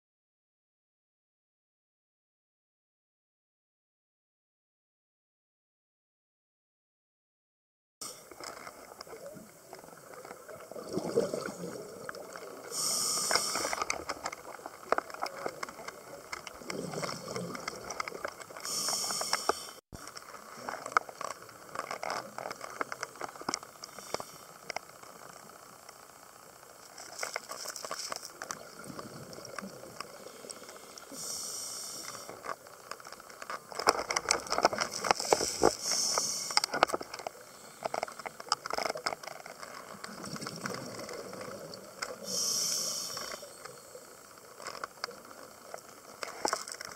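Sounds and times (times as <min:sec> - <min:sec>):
bubbling exhalations: 0:10.6 - 0:14.0, 0:16.5 - 0:19.3
hissing regulator inhalations: 0:12.6 - 0:14.2, 0:16.7 - 0:19.8, 0:30.1 - 0:32.5, 0:35.2 - 0:36.8, 0:42.1 - 0:43.7.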